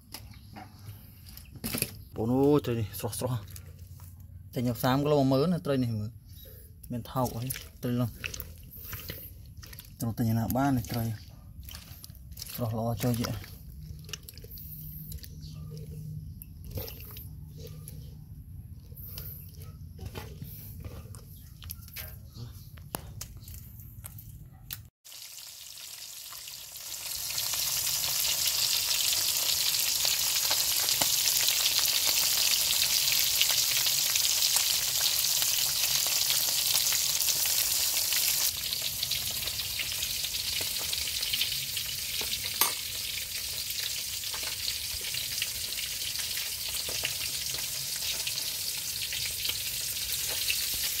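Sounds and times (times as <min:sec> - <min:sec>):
fish sizzling in hot oil: 0:25.1 - 0:51.0.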